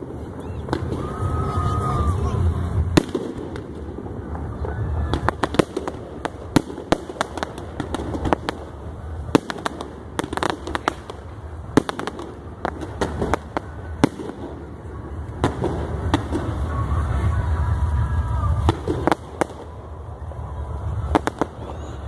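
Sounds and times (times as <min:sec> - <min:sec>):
fireworks bangs and pops: 0:00.0 - 0:22.0.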